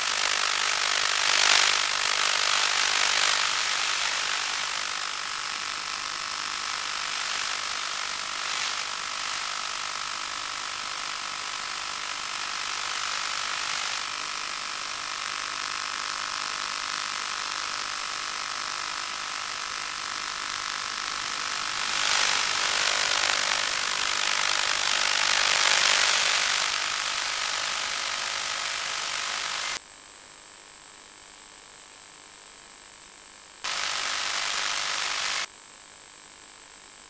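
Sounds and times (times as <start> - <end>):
steady whining tones: 22.0 - 29.8, 33.7 - 35.5
hissing radio static: 24.4 - 29.8, 33.7 - 35.5.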